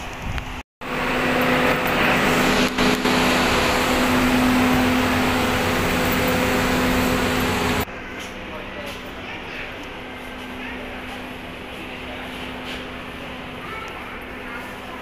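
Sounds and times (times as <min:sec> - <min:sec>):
wind: 0:00.0 - 0:15.0
ferry engines droning: 0:00.8 - 0:15.0
water rushing: 0:00.9 - 0:07.8.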